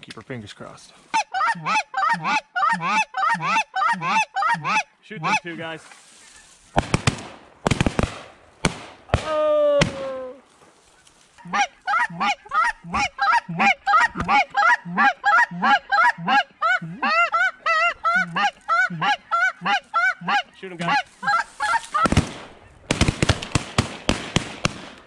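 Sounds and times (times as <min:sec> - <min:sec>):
geese honking: 0:01.1 - 0:06.8, 0:10.8 - 0:22.8
shotgun shots: 0:06.8 - 0:10.1, 0:22.0 - 0:25.0.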